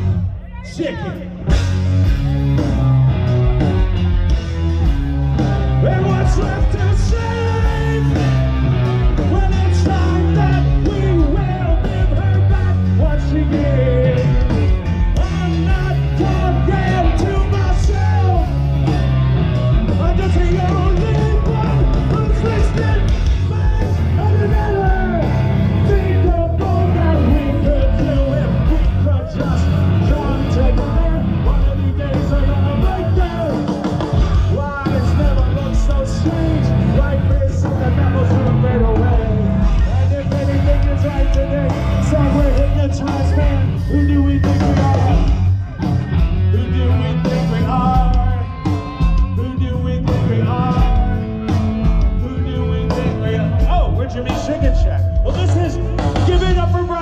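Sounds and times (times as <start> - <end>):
live rock band: 0.0 - 57.0
person singing: 19.9 - 57.0.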